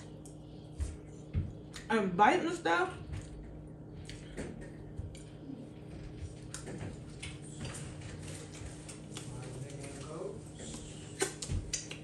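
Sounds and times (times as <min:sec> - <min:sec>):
lip smacks: 0:04.0 - 0:04.3, 0:10.7 - 0:12.0
wet mouth clicks: 0:11.2 - 0:12.0.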